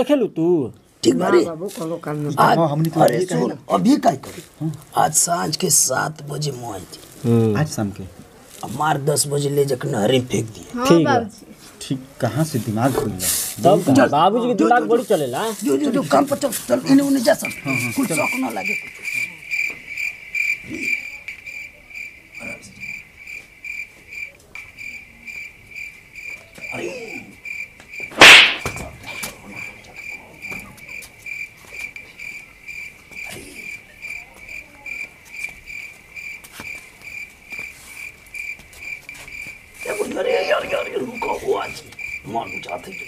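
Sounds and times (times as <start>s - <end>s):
crickets chirping: 11.9s - 43.0s
loud smack: 28.1s - 28.9s.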